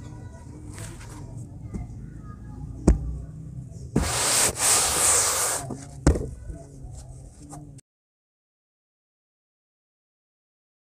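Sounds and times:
hands patting cement powder: 4.0 - 5.7
powder rustling hiss: 4.0 - 5.7.

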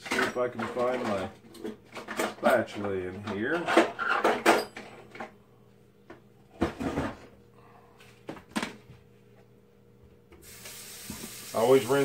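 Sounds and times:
utensils clattering in drawer: 0.0 - 5.2.

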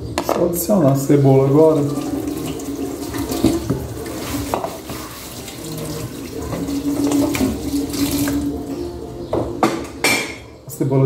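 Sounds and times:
tap water running into sink: 0.9 - 8.7.

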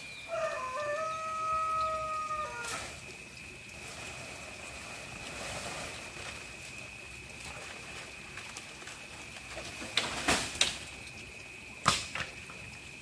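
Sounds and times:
rooster crowing: 0.2 - 2.8.

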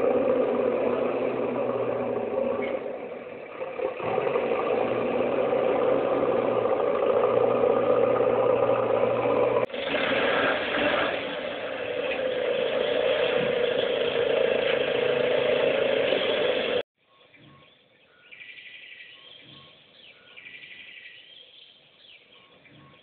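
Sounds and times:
loud engine-like running noise: 0.0 - 16.8
birds chirping: 17.0 - 23.0.

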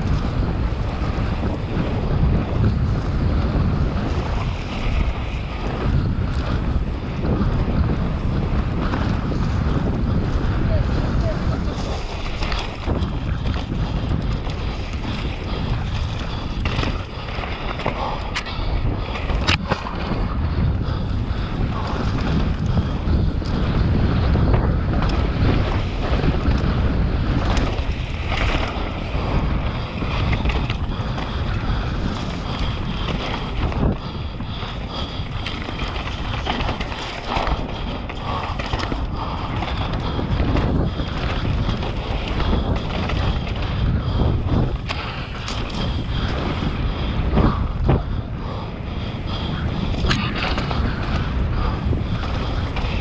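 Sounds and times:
bike rattles and knocks: 0.0 - 53.0
bike tyres rumbling on dirt: 0.0 - 53.0
wind buffeting microphone: 0.0 - 53.0.

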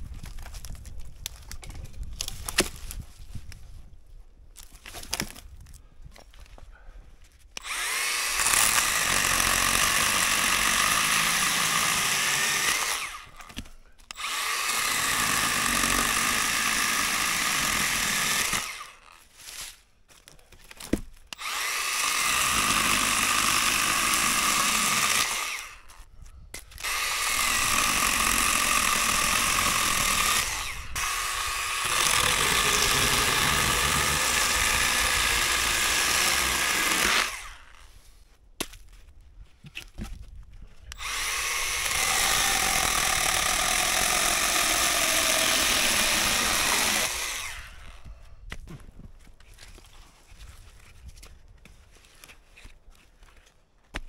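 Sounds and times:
cordless saw cutting wood: 7.6 - 19.3, 21.3 - 26.0, 26.7 - 37.9, 40.9 - 48.1.

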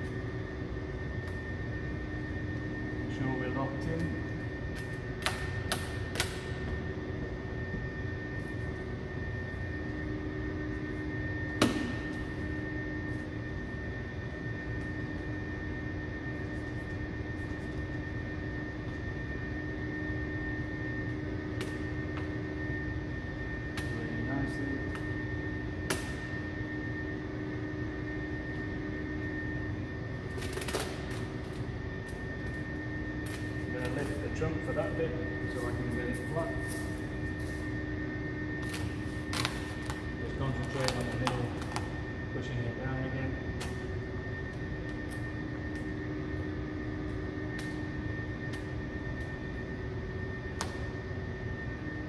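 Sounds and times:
background hum: 0.0 - 52.0
faint high whine: 0.0 - 52.0
squeegee scraping vinyl film: 30.3 - 31.7.

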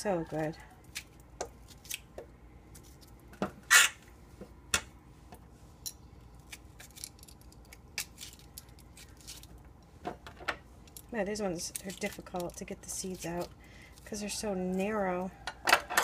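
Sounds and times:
knife scraping zucchini seeds: 11.5 - 15.0.

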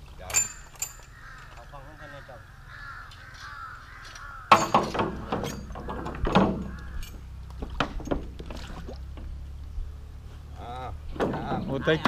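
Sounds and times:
metal rings clattering: 0.2 - 1.8, 3.0 - 8.4.

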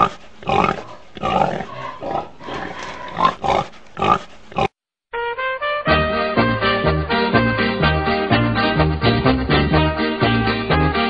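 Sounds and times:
pig grunting and oinking: 0.0 - 4.8
upbeat swing music: 5.2 - 11.0.

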